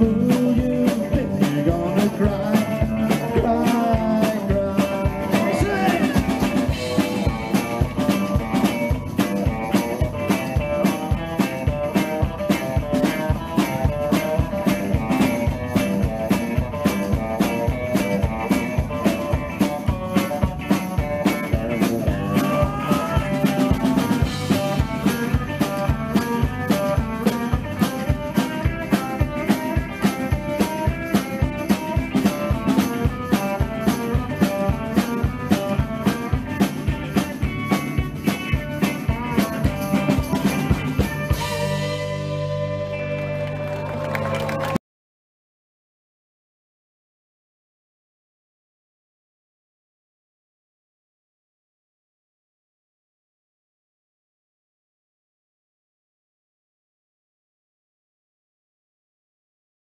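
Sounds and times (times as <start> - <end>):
rock and roll band playing live: 0.0 - 44.8.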